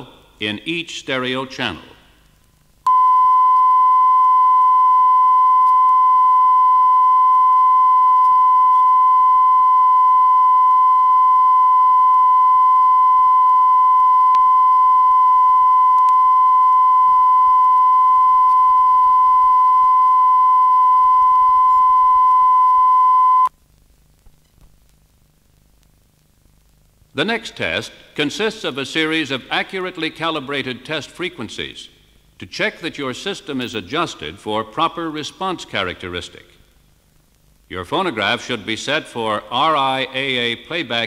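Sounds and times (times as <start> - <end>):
steady test tone: 2.9 - 23.5.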